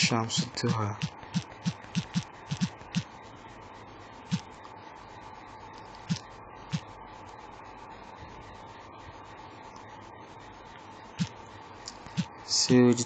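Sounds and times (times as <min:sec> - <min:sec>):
faint steady hum: 0:00.0 - 0:13.0
fingertip taps on touchscreen: 0:00.7 - 0:03.0.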